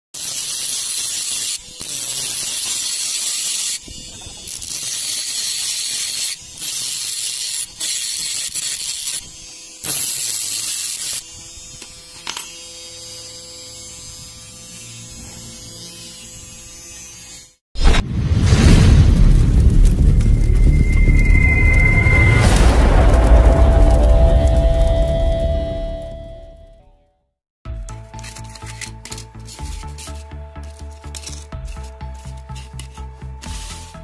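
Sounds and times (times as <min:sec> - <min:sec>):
cut-off disc grinding metal: 0:00.2 - 0:17.6.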